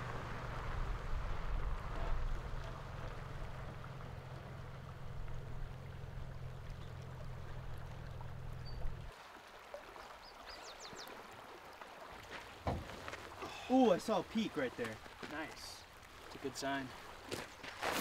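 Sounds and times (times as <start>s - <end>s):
low steady rumble: 0.0s - 9.1s
river water rushing: 0.0s - 18.0s.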